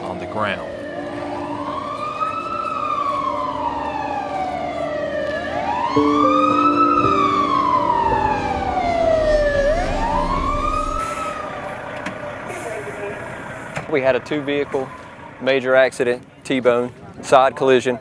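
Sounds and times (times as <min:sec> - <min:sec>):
fire engine siren wailing: 0:00.0 - 0:15.5
lower steady tones: 0:00.6 - 0:12.5.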